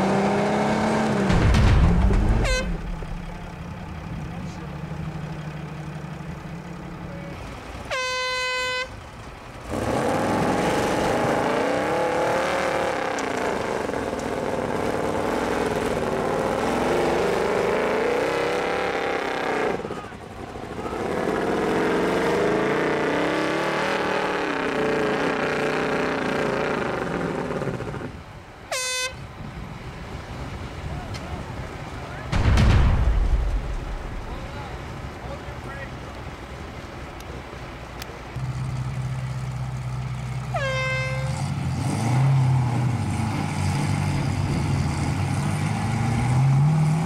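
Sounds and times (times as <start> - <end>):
buggy engine revving: 0.0 - 8.0, 9.4 - 28.3, 32.3 - 47.0
horn blaring: 2.2 - 3.5, 7.8 - 9.0, 28.7 - 29.3, 40.4 - 41.5.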